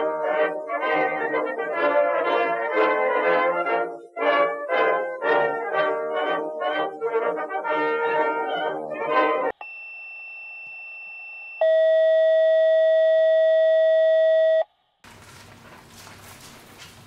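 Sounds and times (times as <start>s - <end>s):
faint high beep: 9.6s - 14.7s
faint room noise: 14.7s - 17.0s.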